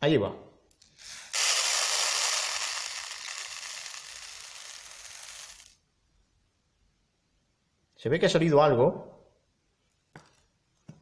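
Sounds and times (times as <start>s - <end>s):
seeds pouring into plastic tub: 1.1s - 5.8s.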